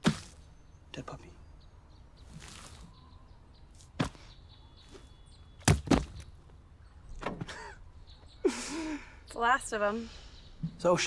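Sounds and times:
sharp thumps: 0:05.6 - 0:06.3.

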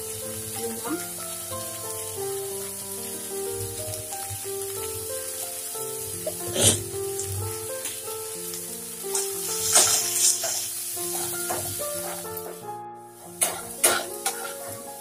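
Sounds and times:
background music: 0:00.0 - 0:15.0
masala sizzling in a wok: 0:00.0 - 0:15.0
spatula scraping a wok: 0:09.1 - 0:12.6, 0:13.4 - 0:14.8.

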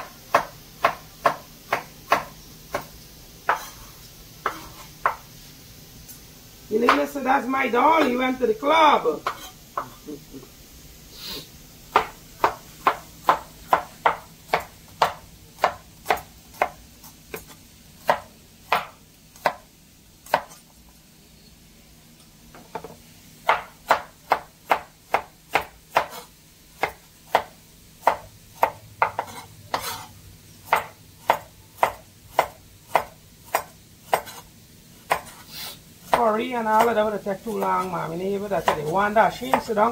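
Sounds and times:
knife chopping on cutting board: 0:00.3 - 0:05.3, 0:09.2 - 0:10.0, 0:11.9 - 0:19.6, 0:20.3 - 0:20.6, 0:22.6 - 0:37.9.

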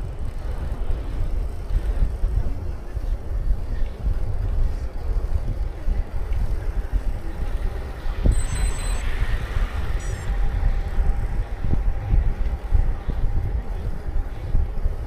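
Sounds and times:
wind buffeting microphone: 0:00.0 - 0:15.0
brief high-pitched tones: 0:08.3 - 0:09.2.

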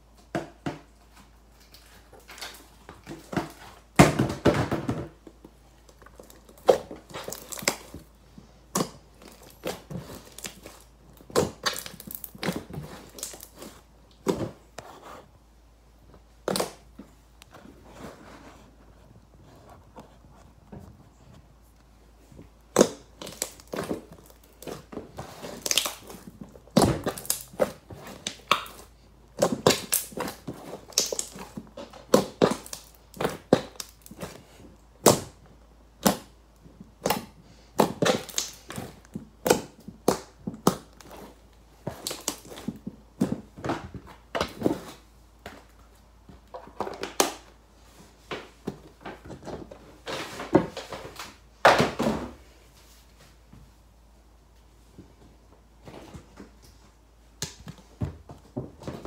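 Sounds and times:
slime popping and squelching: 0:05.9 - 0:14.4, 0:22.6 - 0:35.4, 0:36.0 - 0:43.4.

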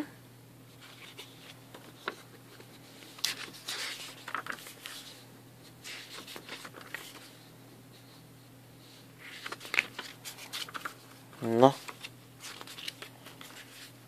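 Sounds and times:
paper pages turning: 0:00.7 - 0:05.2, 0:05.8 - 0:07.4, 0:09.2 - 0:14.0.

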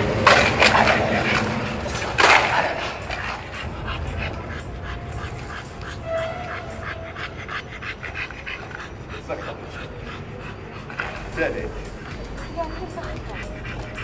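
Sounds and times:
dog panting: 0:00.1 - 0:14.0
dog whining: 0:00.3 - 0:14.0.

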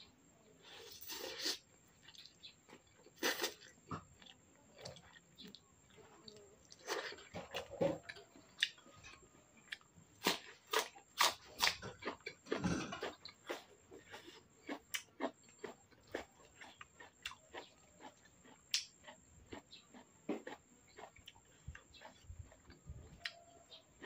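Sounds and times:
slurping noodles: 0:00.8 - 0:01.7, 0:03.2 - 0:03.7.

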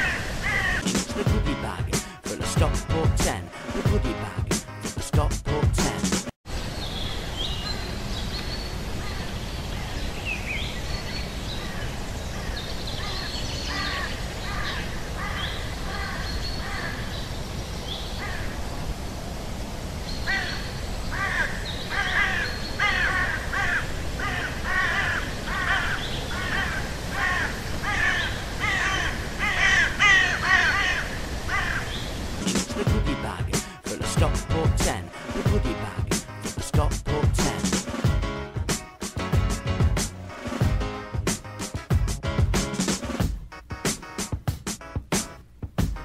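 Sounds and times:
repeated bird calls: 0:06.8 - 0:18.6, 0:20.1 - 0:32.3.

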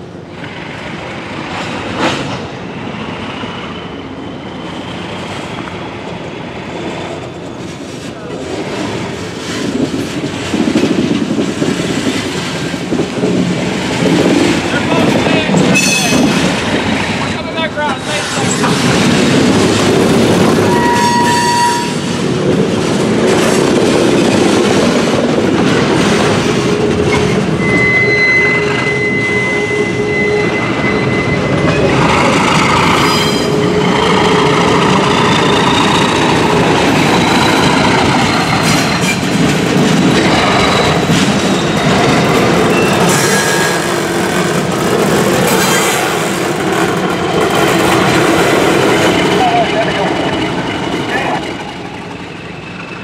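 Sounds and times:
wheel flanges squealing on rail: 0:14.5 - 0:19.1, 0:20.4 - 0:22.2, 0:26.2 - 0:44.2, 0:45.4 - 0:46.4, 0:47.8 - 0:53.0.

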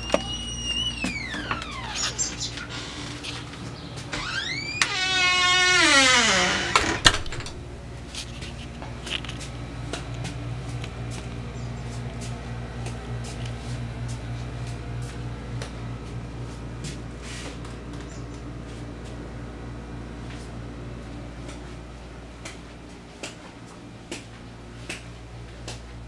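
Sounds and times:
door hinge creaking: 0:00.0 - 0:07.7
steady low hum: 0:00.0 - 0:26.0.

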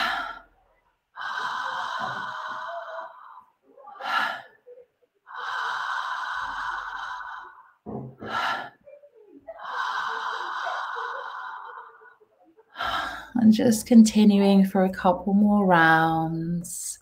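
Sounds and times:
woman breathing through open mouth: 0:00.0 - 0:00.6, 0:01.2 - 0:08.9.

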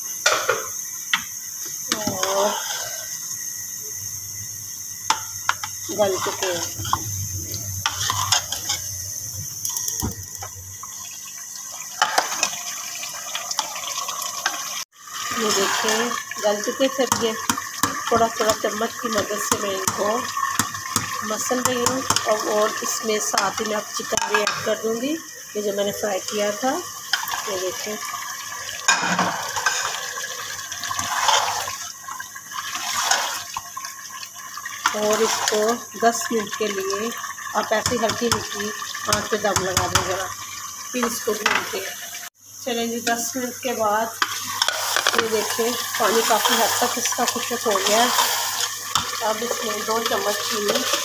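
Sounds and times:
ladle stirring wet food in pot: 0:05.2 - 0:09.0.

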